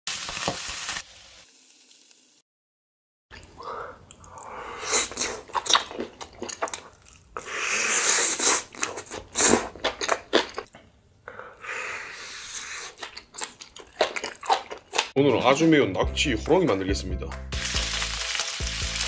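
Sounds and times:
crunchy chewing: 12.5s - 15.2s.

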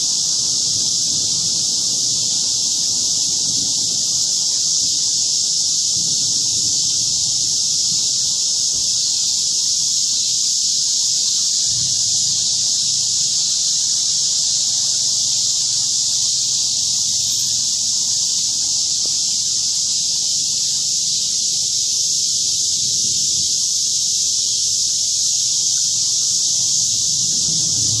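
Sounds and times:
cicadas droning: 0.0s - 28.0s
distant thunder rumble: 27.1s - 28.0s.

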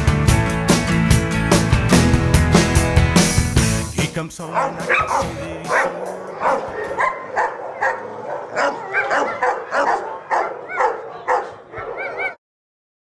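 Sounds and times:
dog barking and yipping: 4.5s - 12.4s
dog whining yelps: 4.9s - 12.4s.

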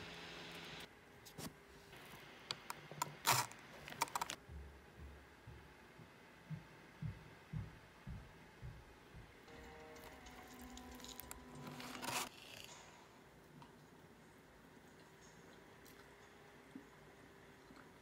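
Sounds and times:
soft low thumps: 4.4s - 9.5s.

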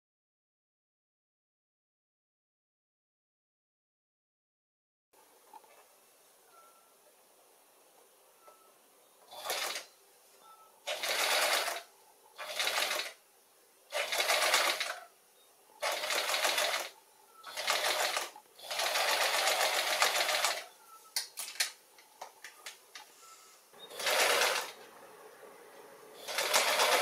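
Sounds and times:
sewing machine stitching: 9.3s - 9.9s, 10.9s - 13.2s, 13.9s - 15.1s, 15.8s - 20.7s, 23.8s - 24.8s, 26.2s - 27.0s.

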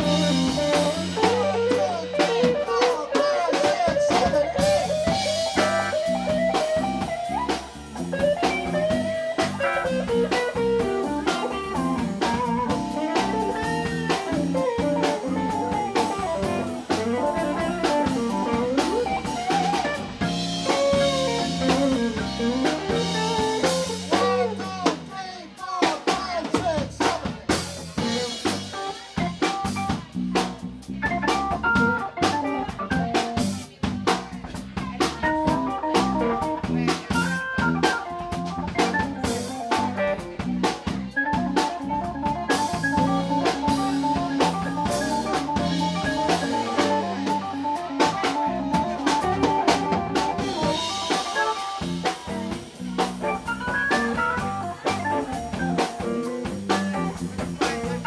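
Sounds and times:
electric guitar lead: 0.0s - 24.7s, 31.0s - 33.6s, 35.2s - 58.0s
organ: 0.0s - 25.0s, 28.0s - 33.7s, 35.2s - 58.0s
bass: 0.0s - 58.0s
drum kit: 0.0s - 58.0s.

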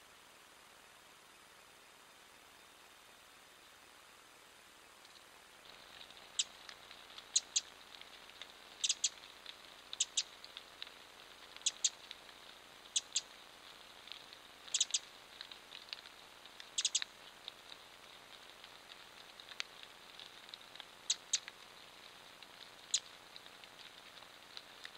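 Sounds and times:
creek water trickling: 4.9s - 24.9s
small bird chip calls: 5.7s - 8.1s, 8.7s - 9.3s, 9.9s - 10.7s, 11.5s - 17.3s, 21.0s - 21.8s, 22.7s - 23.2s.

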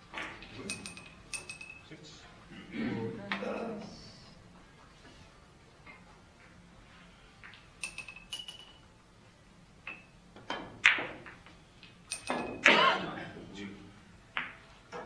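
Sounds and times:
billiard balls clicking: 0.0s - 1.8s, 7.4s - 8.9s, 9.8s - 12.7s, 14.3s - 15.0s.

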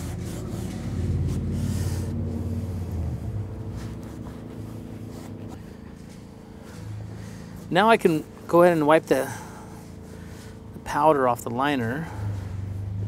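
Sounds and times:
damp cloth wiping plastic: 0.0s - 6.3s
low steady hum: 0.0s - 13.0s.

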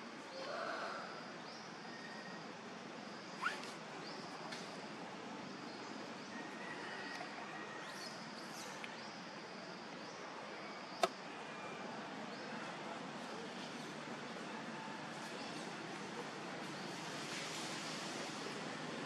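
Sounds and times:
faint outdoor ambience: 0.0s - 19.0s.

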